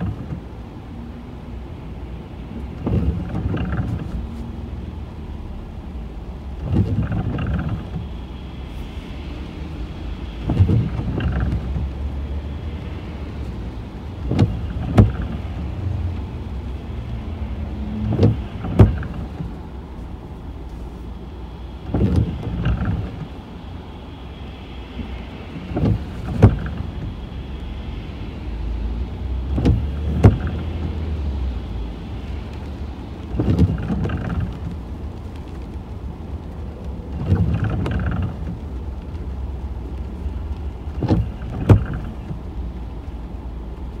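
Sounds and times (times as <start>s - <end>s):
car engine hum: 0.0s - 44.0s
windscreen wipers swishing and clicking: 0.0s - 44.0s.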